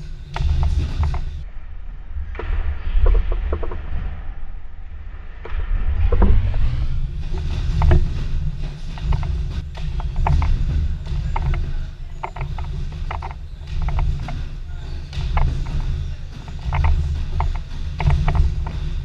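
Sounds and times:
trampolines creaking and clicking: 0.0 - 1.4, 5.4 - 19.0
heavy low rumble: 0.0 - 19.0.

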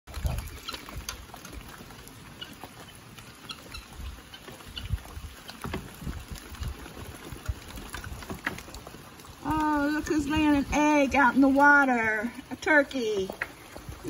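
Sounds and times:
wind gusting on microphone: 4.0 - 14.0
faint ticks and taps: 12.6 - 14.0.

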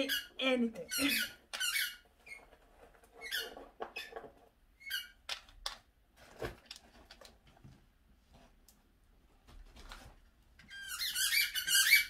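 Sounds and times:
squeaky toy squeaks: 0.0 - 2.5, 3.2 - 4.2, 4.8 - 5.2, 10.7 - 12.0.

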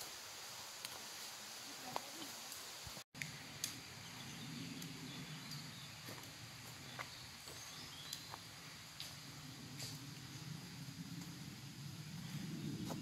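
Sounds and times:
quiet outdoor background: 0.0 - 13.0
faint footsteps on woodland path: 0.7 - 3.4, 5.3 - 11.4, 12.2 - 13.0.

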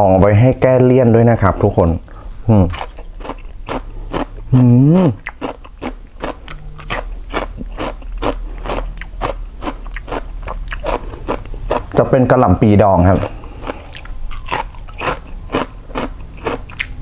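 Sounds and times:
person humming mmm: 2.4 - 2.8, 4.5 - 5.4, 6.4 - 7.8
crunchy chewing: 2.6 - 17.0.

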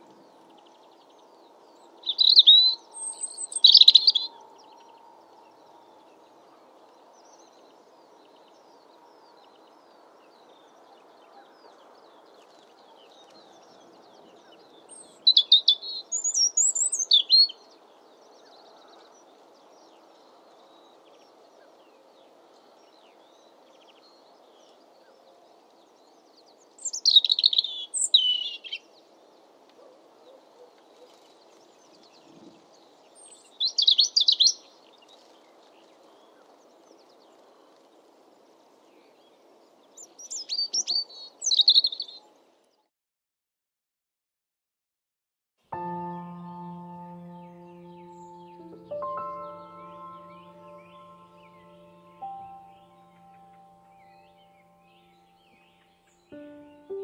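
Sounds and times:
robin singing: 2.0 - 4.4, 14.4 - 17.7, 26.8 - 28.8, 45.7 - 57.0.

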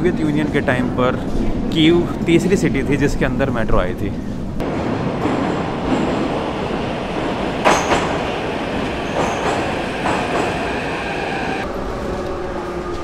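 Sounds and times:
train wheels clattering over rails: 4.6 - 11.7
train braking whine: 5.0 - 11.7.

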